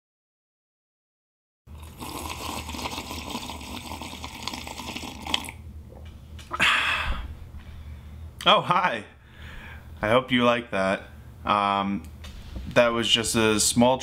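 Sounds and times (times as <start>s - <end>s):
man slurping from mug: 1.7s - 5.6s.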